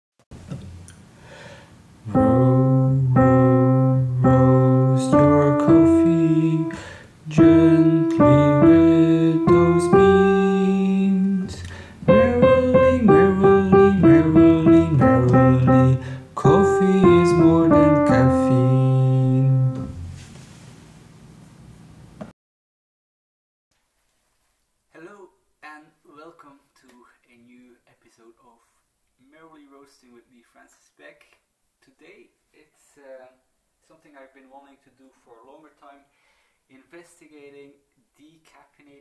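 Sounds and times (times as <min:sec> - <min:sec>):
piano-like keyboard music: 0:02.1 - 0:20.2.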